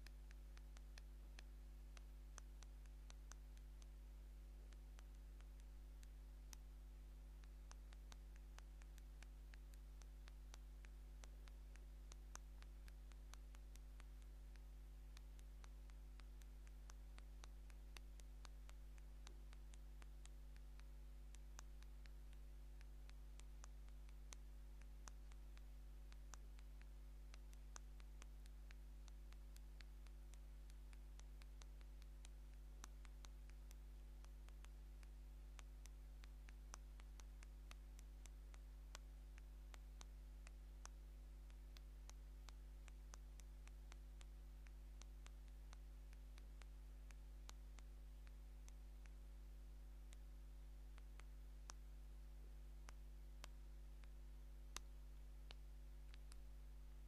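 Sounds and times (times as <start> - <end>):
low electrical hum: 0.0 - 57.0.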